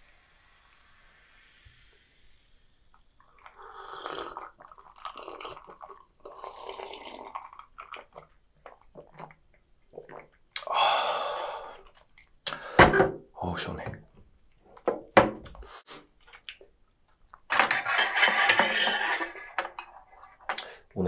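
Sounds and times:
glass mug set down on table: 12.8s - 13.2s.

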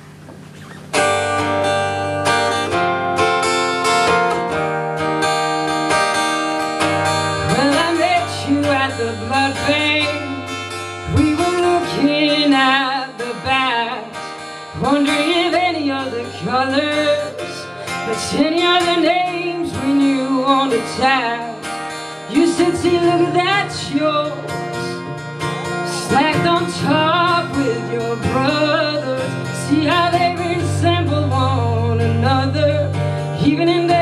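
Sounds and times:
acoustic guitar strumming: 0.0s - 34.0s
woman singing: 7.4s - 34.0s.

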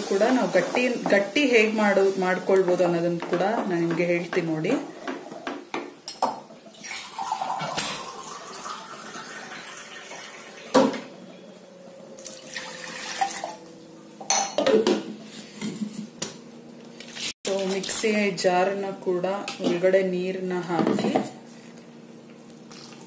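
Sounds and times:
kitchen utensils clattering: 14.2s - 15.9s.

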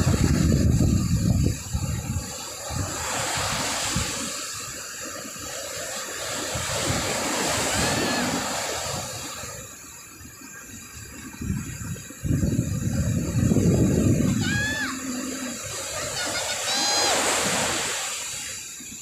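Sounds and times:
wind rushing: 0.0s - 4.4s, 11.3s - 16.2s
wind buffeting microphone: 0.0s - 5.5s, 6.1s - 16.4s
surf on a beach: 0.0s - 19.0s.

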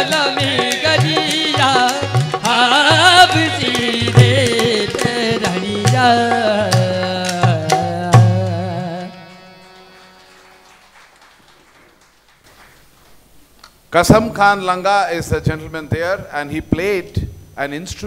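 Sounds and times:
hand drum beats: 0.0s - 8.9s
person singing melody: 0.0s - 10.6s
harmonium: 0.0s - 11.3s.

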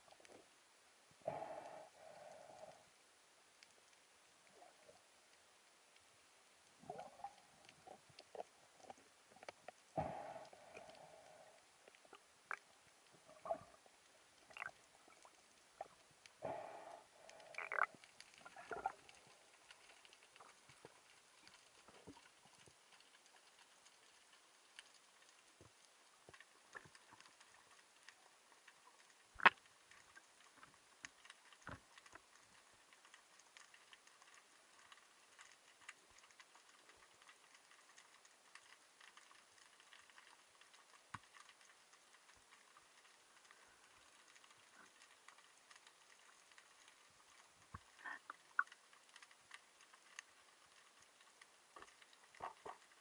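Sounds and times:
underwater hiss: 1.2s - 2.9s, 9.9s - 12.1s, 16.4s - 19.4s
sharp underwater clicks: 6.7s - 53.0s.

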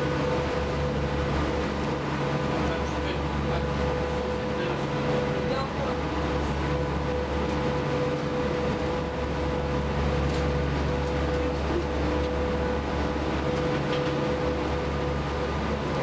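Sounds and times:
ferry engines droning: 0.0s - 16.0s
steady engine whine: 0.0s - 16.0s
water washing along hull: 0.0s - 16.0s.

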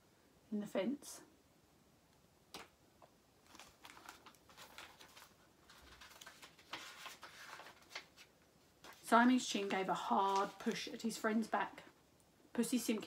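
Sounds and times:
paperback book rustling: 3.4s - 11.2s.

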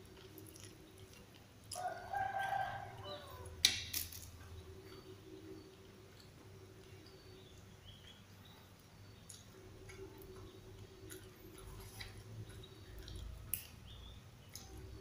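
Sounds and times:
quiet chewing: 0.0s - 15.0s
leaves picked off stems clicking: 3.6s - 4.4s.

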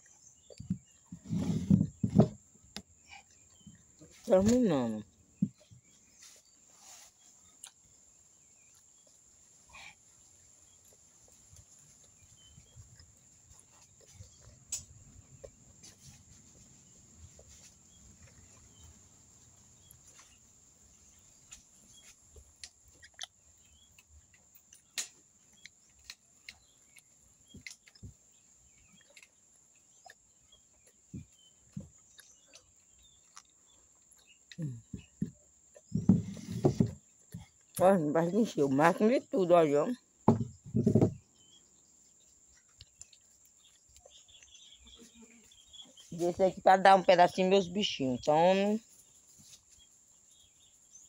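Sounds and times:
chewing clicks and smacks: 10.8s - 15.7s, 22.5s - 34.6s, 42.5s - 44.6s.

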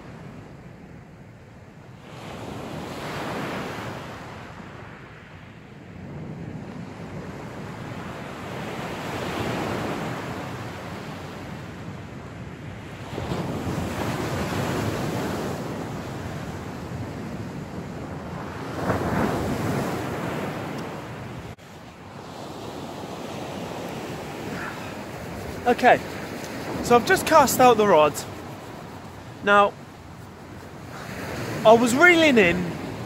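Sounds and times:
sea waves breaking: 12.9s - 33.0s.

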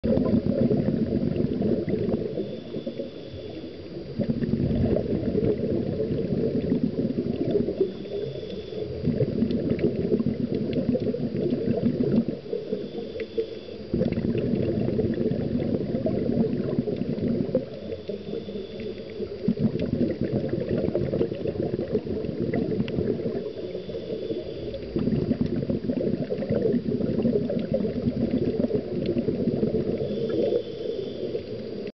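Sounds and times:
bubbles gurgling underwater: 0.0s - 31.9s
regulator hissing inhalations: 30.0s - 31.8s.

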